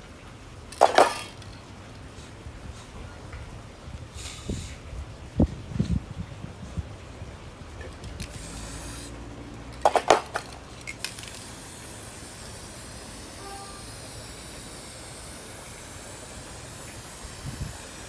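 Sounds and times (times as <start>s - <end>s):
spray paint can hissing: 0.7s - 1.5s, 4.1s - 4.8s, 8.1s - 18.0s
sharp clicks: 9.8s - 11.4s.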